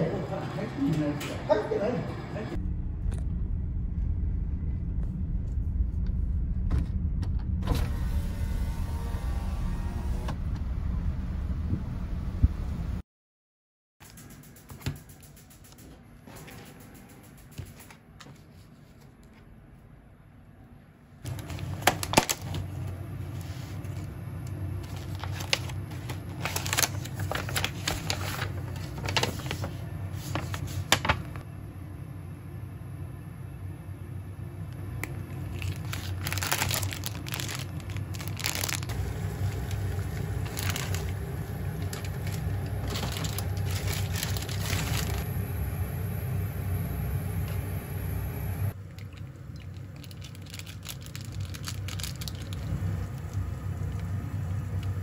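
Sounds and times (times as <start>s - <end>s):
steady low hum: 0.0s - 13.0s, 14.0s - 55.0s
sachet tearing: 21.3s - 24.1s, 24.8s - 31.1s, 35.4s - 45.3s, 49.6s - 52.7s
plastic packaging crinkling: 21.3s - 31.4s, 35.3s - 45.3s, 48.9s - 54.1s.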